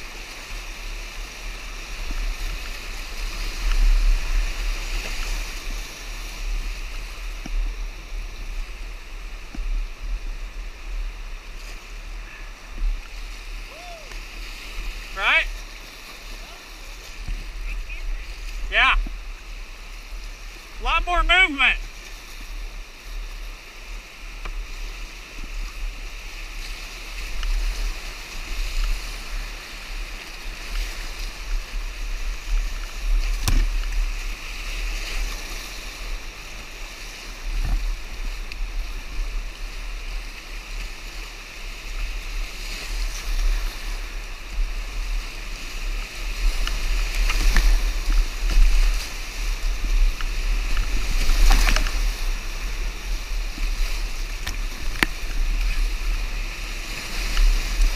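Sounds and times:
whitewater rushing and splashing: 0.0s - 57.9s
sharp knocks on kayak: 33.3s - 33.8s.

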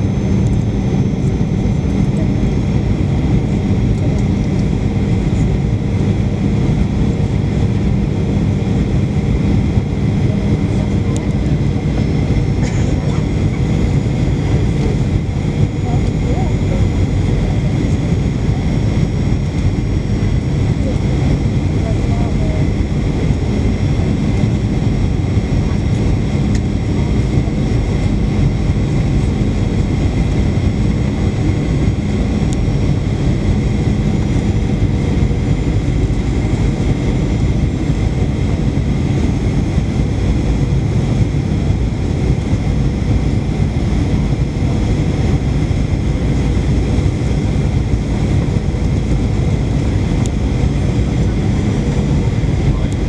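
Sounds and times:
jet engine and airflow rumble: 0.0s - 53.0s.

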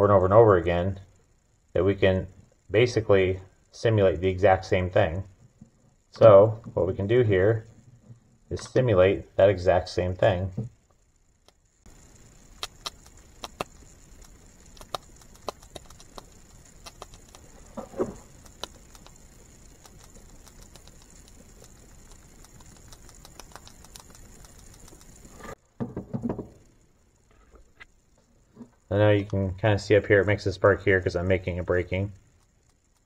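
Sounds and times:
ignition sparks snapping: 10.9s - 25.6s.

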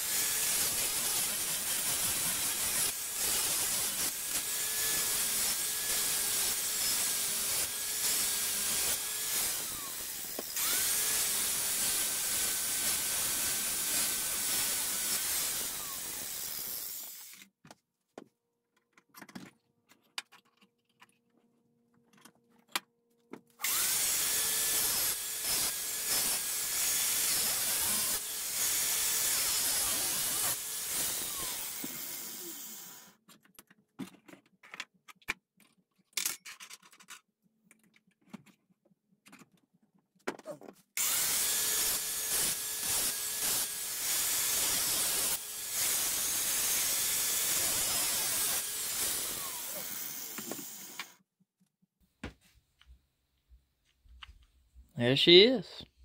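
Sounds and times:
power grinder sanding metal: 0.0s - 17.3s, 23.6s - 33.0s, 41.0s - 51.1s
tools clicking and knocking: 18.7s - 23.4s, 33.3s - 40.8s.

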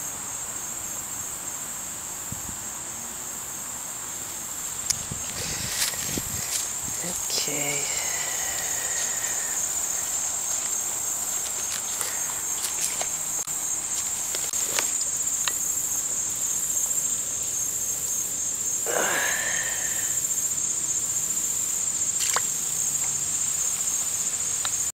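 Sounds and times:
insects chorus: 0.0s - 24.9s.

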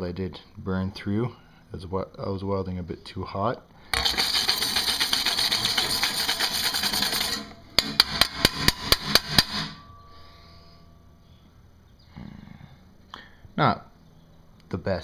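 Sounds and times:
rough scraping: 3.9s - 9.9s
sharp metal knocks on saw blade: 7.8s - 9.8s.

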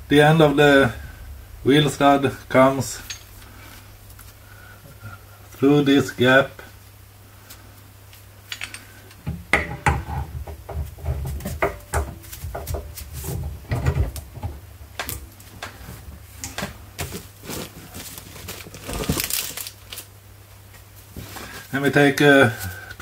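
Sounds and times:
heavy metal bumps: 0.0s - 3.9s.

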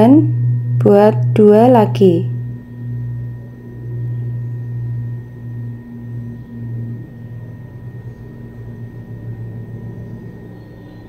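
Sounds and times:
faint high tones: 0.0s - 11.0s
steady low hum: 0.0s - 11.0s.

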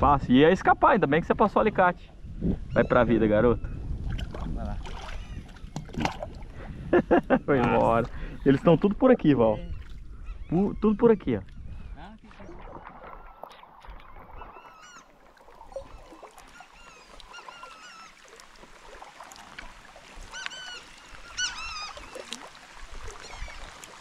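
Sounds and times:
paddle strokes splashing: 12.2s - 24.0s
flock of birds calling: 15.7s - 18.2s, 20.2s - 22.3s.

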